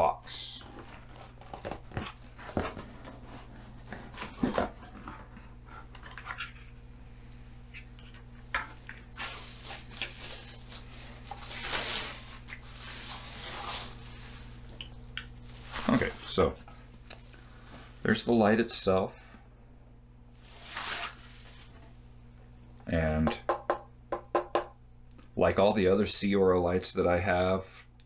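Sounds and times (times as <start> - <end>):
steady low hum: 0.0 - 28.0
bubble wrap rustling: 9.0 - 14.8, 15.4 - 16.3, 20.4 - 21.8.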